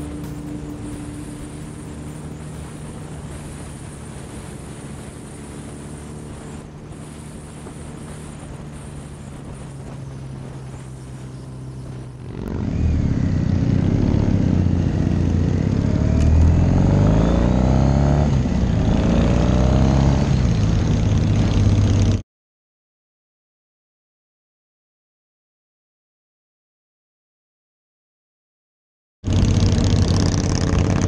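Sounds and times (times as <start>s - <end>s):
wind rush: 0.0s - 21.2s
motorcycle engines: 0.0s - 22.2s, 29.3s - 31.0s.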